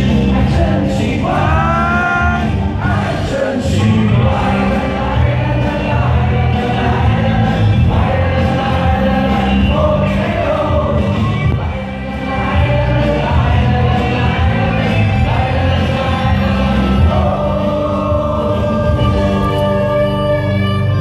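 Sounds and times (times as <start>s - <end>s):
crowd singing along: 0.0s - 19.9s
pop song over loudspeakers: 0.0s - 21.0s.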